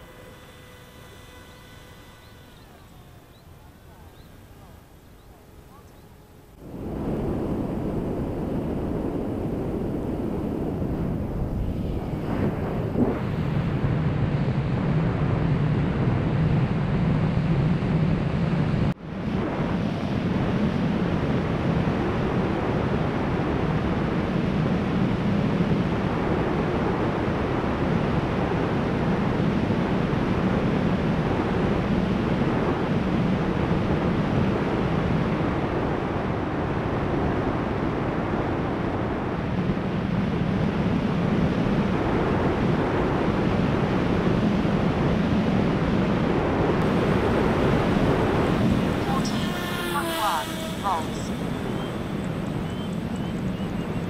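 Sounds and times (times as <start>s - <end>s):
propeller noise: 0.0s - 54.0s
wind rushing: 6.6s - 15.7s, 39.0s - 54.0s.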